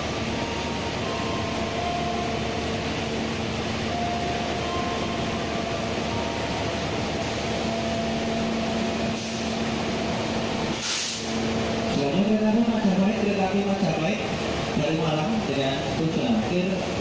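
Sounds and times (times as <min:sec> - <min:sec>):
locomotive engine humming: 0:00.0 - 0:17.0
short hiss: 0:10.7 - 0:11.4.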